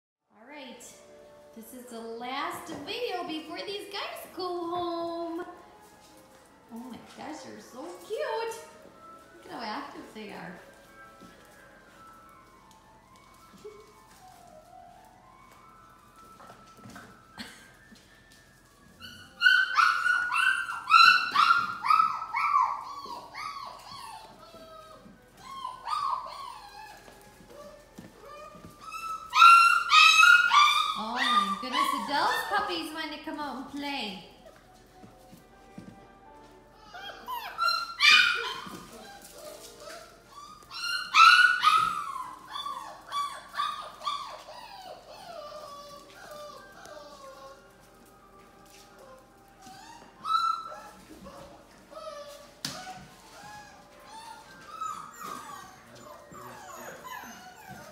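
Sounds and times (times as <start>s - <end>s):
puppy yelping: 19.0s - 32.7s, 36.8s - 47.7s, 49.0s - 57.9s.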